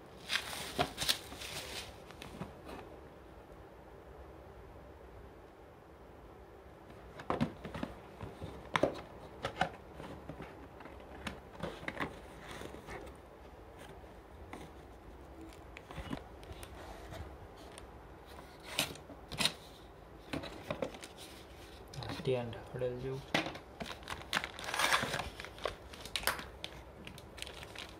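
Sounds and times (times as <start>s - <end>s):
box packaging rustling: 0.2s - 2.9s, 6.9s - 22.3s, 23.8s - 27.9s.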